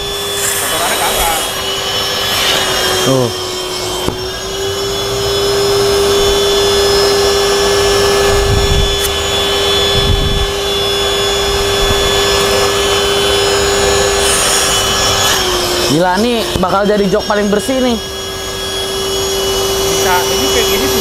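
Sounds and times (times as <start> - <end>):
deeper suction rushes: 0.0 - 4.5
vacuum cleaner whining: 0.0 - 21.0.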